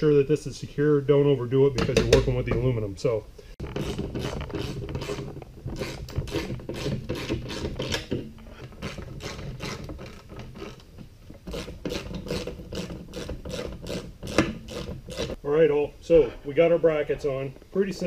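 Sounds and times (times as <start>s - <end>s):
wrench clicking and scraping metal: 3.6s - 15.4s.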